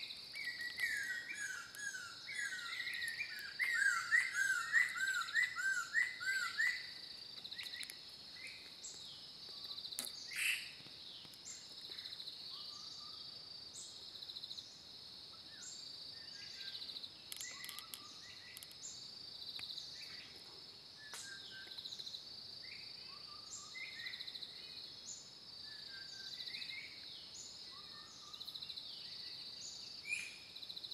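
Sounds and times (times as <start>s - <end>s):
birds chirping: 0.0s - 14.9s, 15.5s - 22.2s
high insect drone: 0.0s - 30.9s.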